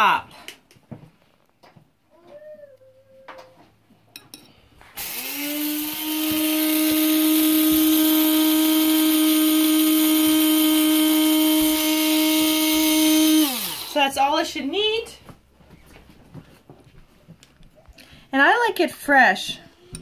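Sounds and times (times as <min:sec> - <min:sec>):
coffee grinder motor whining: 0:05.0 - 0:14.2.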